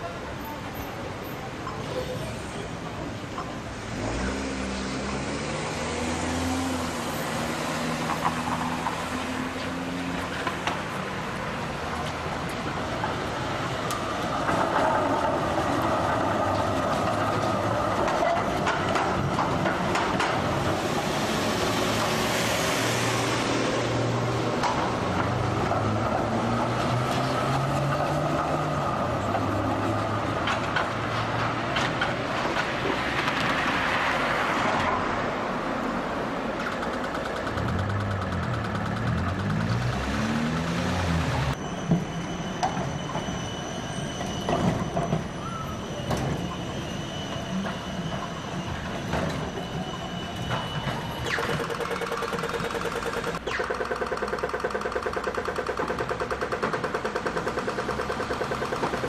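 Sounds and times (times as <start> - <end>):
electric tram running: 0.0 - 59.0
cars driving: 0.7 - 53.5
wheels clicking over rails: 7.9 - 22.3, 23.8 - 35.1, 36.0 - 59.0.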